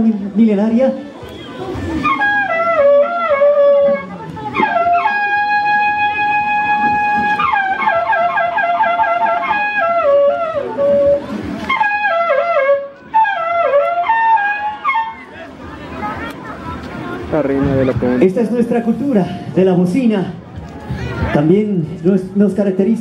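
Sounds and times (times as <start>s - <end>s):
long horn playing melody: 0.9s - 16.2s.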